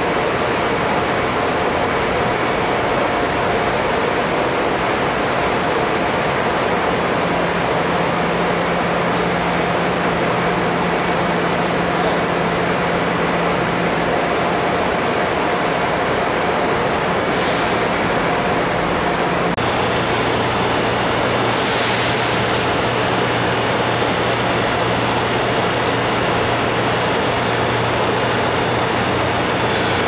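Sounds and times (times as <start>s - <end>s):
rushing drone of machinery: 0.0s - 30.0s.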